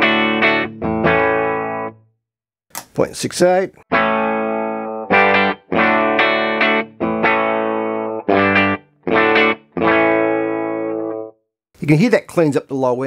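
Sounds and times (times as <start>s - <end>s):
electric guitar chords strummed: 0.0s - 2.0s, 3.9s - 11.3s.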